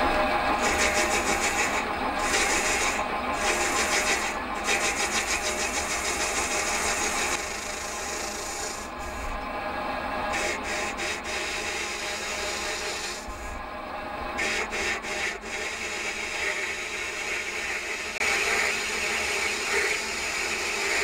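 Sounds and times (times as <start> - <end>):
lathe motor hum: 0.0 - 21.0
lathe tool cutting metal: 0.0 - 21.0.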